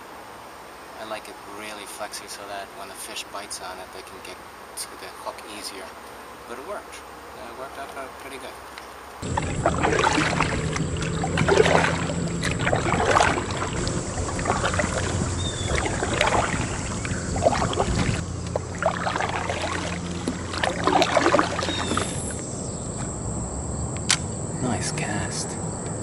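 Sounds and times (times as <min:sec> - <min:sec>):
steady low hum: 0:03.5 - 0:26.0
paddle strokes in water: 0:09.2 - 0:22.5.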